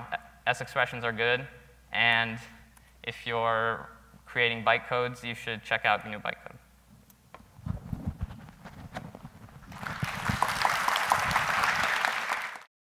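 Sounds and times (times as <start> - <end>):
audience applauding: 9.6 - 12.7.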